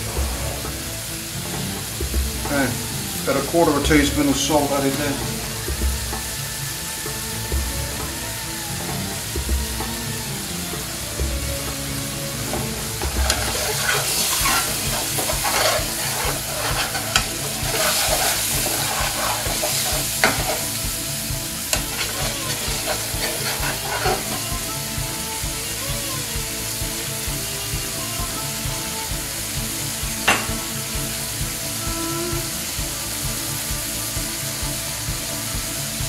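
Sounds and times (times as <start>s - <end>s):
curry sizzling in a frying pan: 0.0s - 36.0s
metal spoon scraping a pan: 12.6s - 20.8s, 21.7s - 24.6s.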